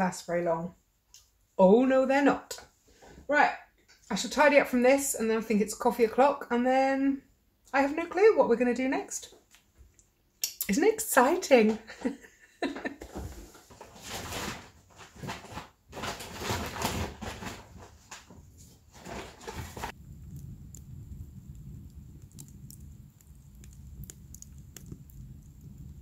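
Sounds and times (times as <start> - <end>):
plastic bag rustling: 13.1 - 20.0
fire rumbling in stove: 13.1 - 26.0
fire crackling: 18.4 - 26.0.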